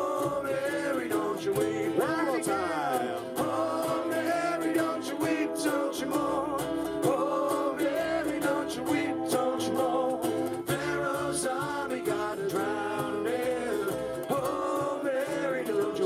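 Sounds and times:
cajon beat: 0.0s - 16.0s
sliding melody line: 0.0s - 16.0s
ukuleles strumming: 0.0s - 16.0s.

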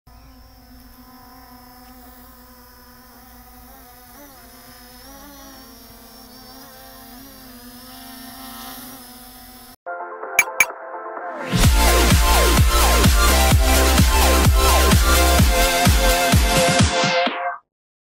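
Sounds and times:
quadcopter propellers buzzing: 0.2s - 9.8s.

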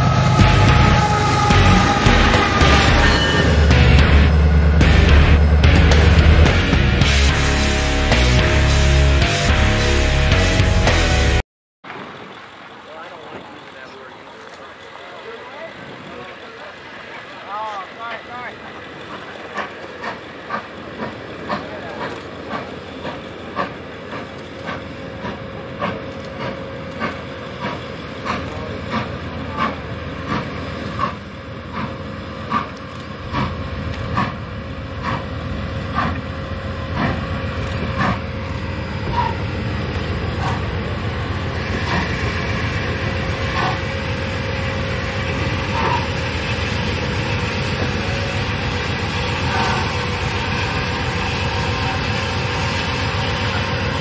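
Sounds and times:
deep rumble of engine: 0.0s - 7.4s
steam locomotive chuffing: 0.0s - 10.6s, 12.9s - 54.0s
train rolling noise: 0.0s - 54.0s.

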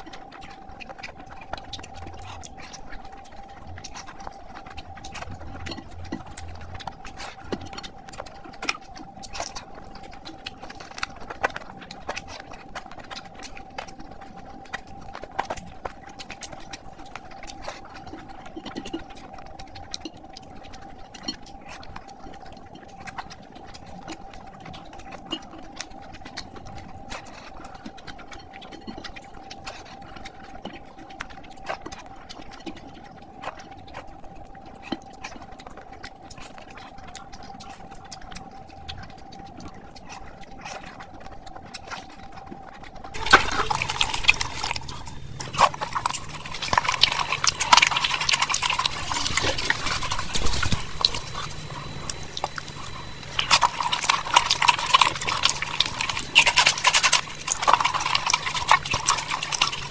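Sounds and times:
faint steady hum: 0.0s - 59.9s
wet chewing and lip-smacking: 0.0s - 59.9s
crackling bites: 43.1s - 59.9s.

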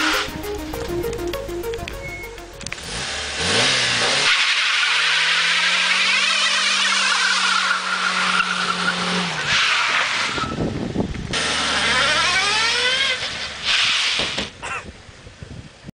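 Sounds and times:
car engine running: 0.0s - 4.4s
reversing car whine: 0.0s - 14.2s.

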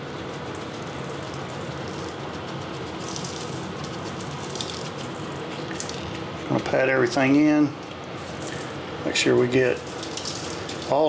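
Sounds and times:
seasoning granules ticking: 0.0s - 6.3s, 9.4s - 11.0s
low background hum: 0.0s - 11.0s.

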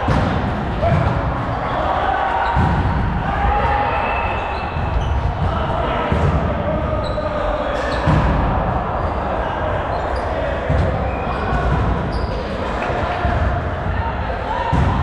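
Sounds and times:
volleyball thuds echoing: 0.0s - 1.7s, 2.4s - 3.3s
players' voices: 0.0s - 15.0s.

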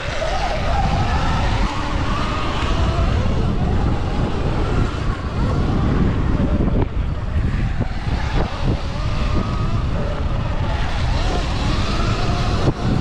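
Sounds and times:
electric motor whine: 0.0s - 13.0s
wind buffeting microphone: 0.0s - 13.0s.

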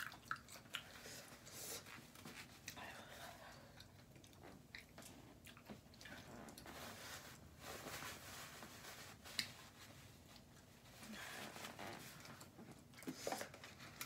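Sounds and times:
person chewing food: 0.0s - 2.8s, 3.4s - 7.0s.

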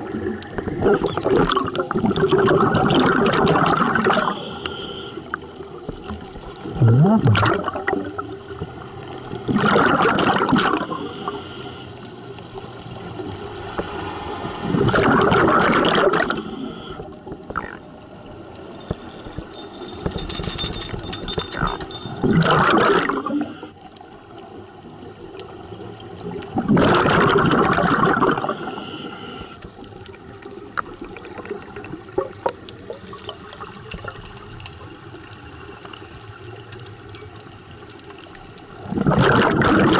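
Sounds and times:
exhaled bubbles rushing: 0.0s - 4.5s, 5.3s - 11.4s, 14.5s - 18.3s, 21.3s - 23.7s, 24.4s - 34.3s, 38.7s - 39.9s
underwater water noise: 0.0s - 39.9s.

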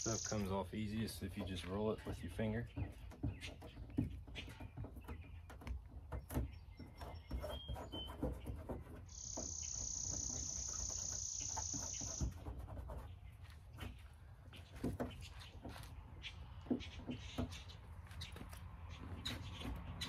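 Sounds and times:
insect buzzing: 9.1s - 12.2s.

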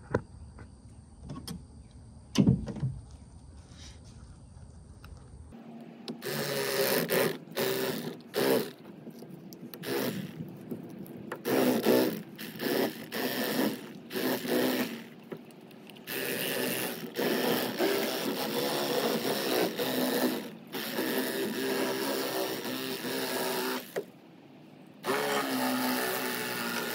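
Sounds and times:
electric fillet knife buzzing: 6.1s - 8.8s, 9.7s - 10.4s, 11.3s - 15.2s, 16.1s - 24.1s, 25.0s - 26.9s.

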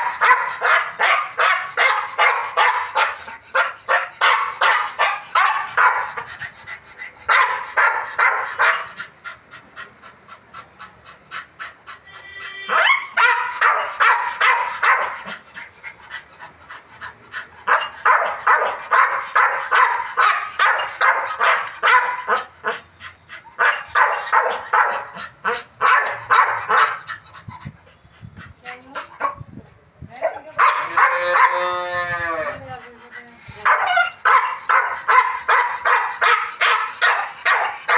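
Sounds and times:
dog barking: 0.0s - 6.2s, 7.3s - 8.9s, 12.7s - 15.2s, 17.7s - 22.8s, 23.6s - 27.0s, 30.6s - 31.7s, 33.6s - 37.9s
dog yelp: 12.6s - 15.2s, 17.7s - 22.8s, 23.6s - 27.0s, 30.6s - 31.7s, 33.7s - 37.9s.

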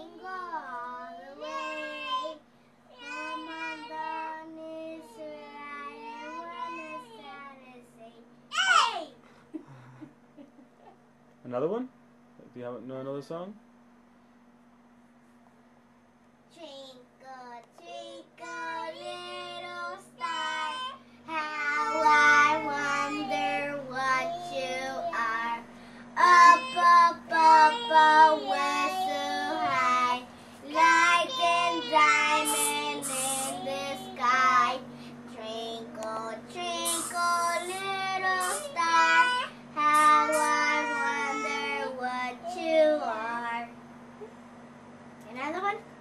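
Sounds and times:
girl singing unaccompanied: 0.0s - 8.3s, 16.5s - 43.8s
faint steady hum: 0.0s - 46.0s.

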